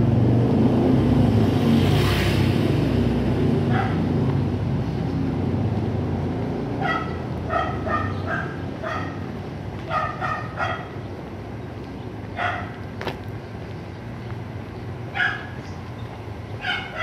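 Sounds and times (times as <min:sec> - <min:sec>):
street traffic rumble: 0:00.0 - 0:17.0
small dog yapping: 0:06.8 - 0:09.3, 0:09.9 - 0:10.9, 0:12.4 - 0:12.8, 0:15.2 - 0:15.6, 0:16.6 - 0:17.0.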